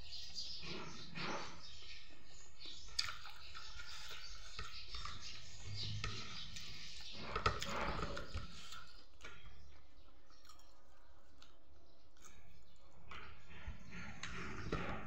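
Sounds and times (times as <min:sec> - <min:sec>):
wet mouth clicks and chewing: 0:02.9 - 0:04.2, 0:10.3 - 0:13.3
fingers working rice on a plate: 0:03.0 - 0:11.6.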